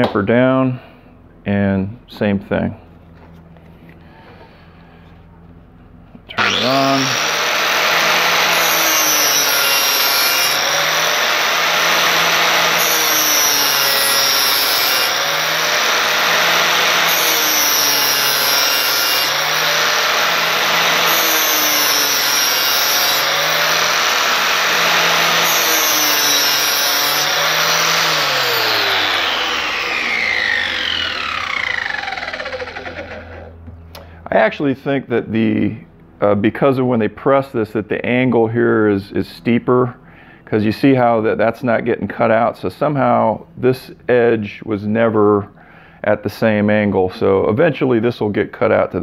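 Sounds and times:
angle grinder grinding steel: 6.3s - 33.6s
grinder winding down: 6.3s - 34.0s.

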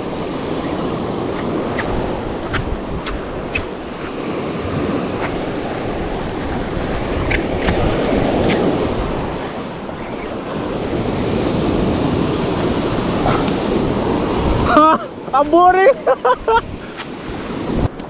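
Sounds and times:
small surf breaking on beach: 0.0s - 14.7s
wind buffeting microphone: 0.0s - 18.0s.

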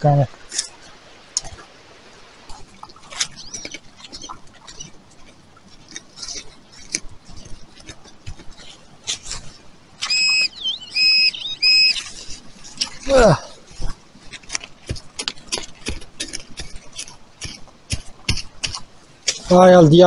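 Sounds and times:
metal detector beep: 10.0s - 12.0s.

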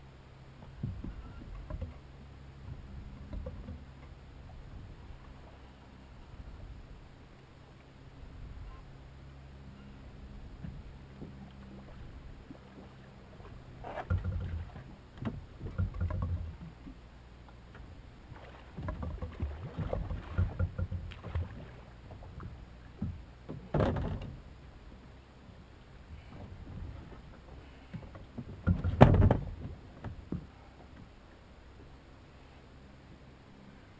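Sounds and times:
water splashing: 18.2s - 24.2s
knocks on boat hull: 18.8s - 21.6s, 28.4s - 30.5s.

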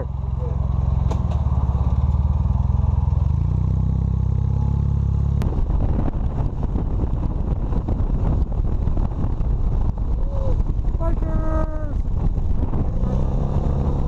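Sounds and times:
motorcycle engine running: 0.0s - 14.0s
wind buffeting microphone: 5.4s - 14.0s.

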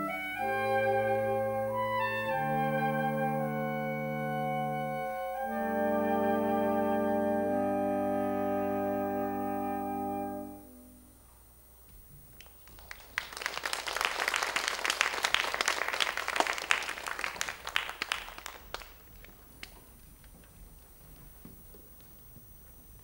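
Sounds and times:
saxophone quartet chord: 0.0s - 11.3s
audience applauding: 12.4s - 20.0s.

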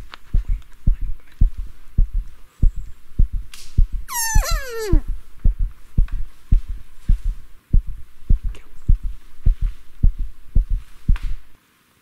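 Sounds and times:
heartbeat thumps: 0.0s - 11.6s.

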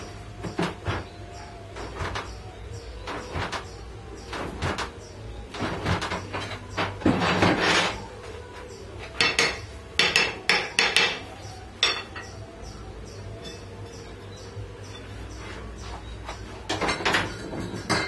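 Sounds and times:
rattling scrape: 5.6s - 8.1s
hammer striking metal: 9.2s - 11.2s.

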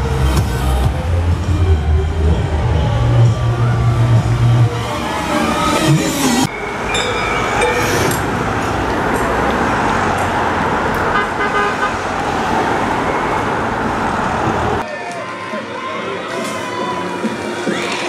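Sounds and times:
vehicles driving past: 0.0s - 18.0s
horn toots: 11.0s - 12.1s.

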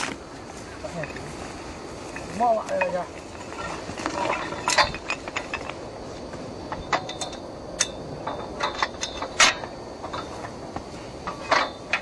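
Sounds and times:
metallic clicks and clinks: 6.7s - 10.6s.

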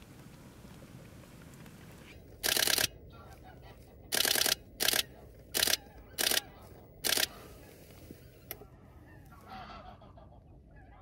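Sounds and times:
camera shutter bursts: 2.4s - 3.0s, 4.1s - 7.5s.

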